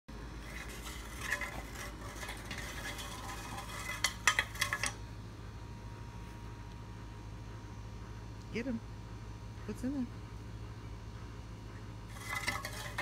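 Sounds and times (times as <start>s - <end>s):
metal pipe scraping and rattling: 0.4s - 5.1s, 12.1s - 13.0s.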